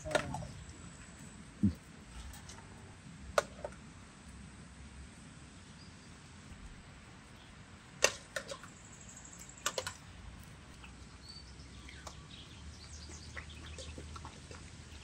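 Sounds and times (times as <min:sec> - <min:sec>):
dogs eating from metal bowls: 0:08.0 - 0:15.0.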